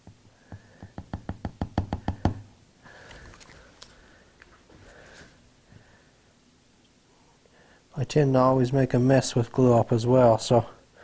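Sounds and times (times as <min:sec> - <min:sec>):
bottle rustling and clicks: 0:03.0 - 0:04.7.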